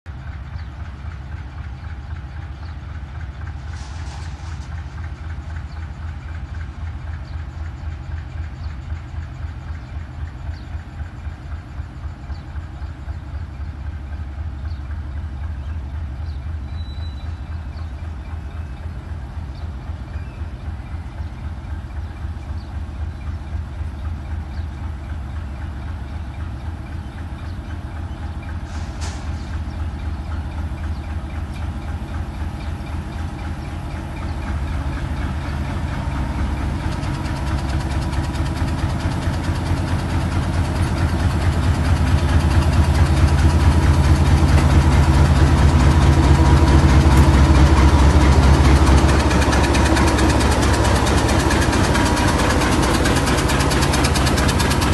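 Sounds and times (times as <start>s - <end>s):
diesel locomotive engine thrum: 0.1s - 54.9s
brief hiss: 3.6s - 4.7s, 28.7s - 29.5s.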